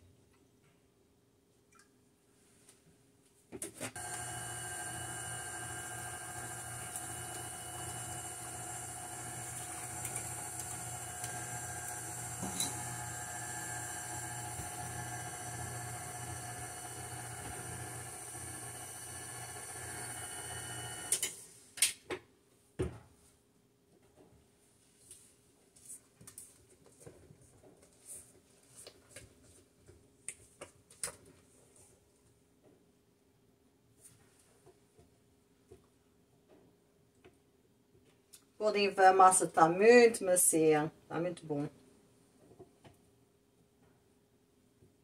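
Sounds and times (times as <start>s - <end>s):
stand mixer running: 4.0s - 21.2s.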